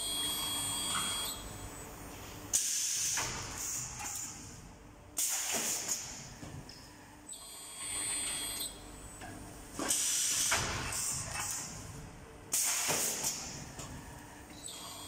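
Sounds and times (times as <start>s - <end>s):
pneumatic air hisses: 9.8s - 11.2s.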